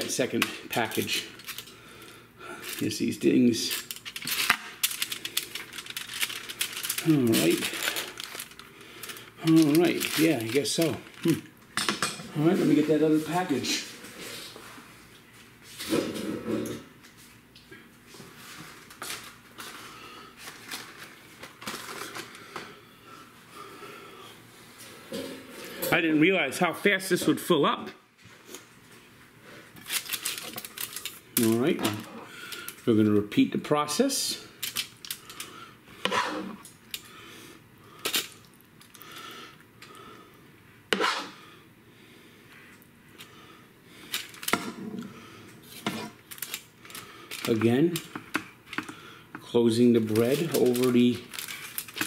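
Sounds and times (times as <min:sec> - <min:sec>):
package crinkling: 0:02.6 - 0:11.5, 0:20.4 - 0:22.4, 0:29.8 - 0:32.8, 0:34.6 - 0:35.5, 0:44.0 - 0:44.6, 0:45.6 - 0:49.0, 0:49.8 - 0:52.0.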